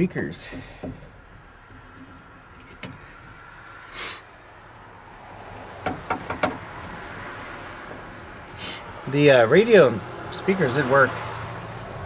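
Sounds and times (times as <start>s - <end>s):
short hiss: 3.8s - 4.3s, 8.6s - 8.9s.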